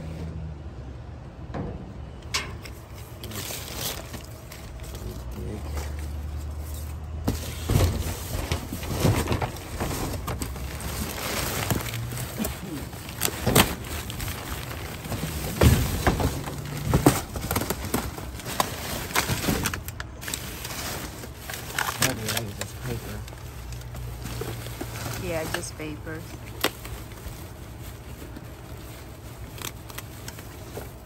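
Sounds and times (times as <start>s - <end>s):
plastic bags and cardboard rustling: 2.1s - 31.0s
bumps and knocks in dumpster: 13.3s - 17.9s.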